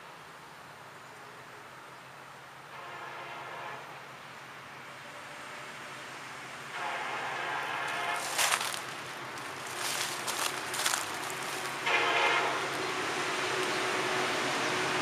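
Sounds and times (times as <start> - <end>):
train air horn blasts: 2.7 - 4.0, 6.7 - 8.7, 11.7 - 13.0.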